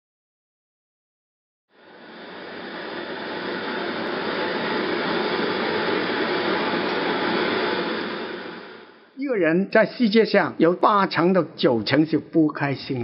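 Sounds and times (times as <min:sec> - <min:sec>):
gas torch flame hissing: 0:01.8 - 0:09.2.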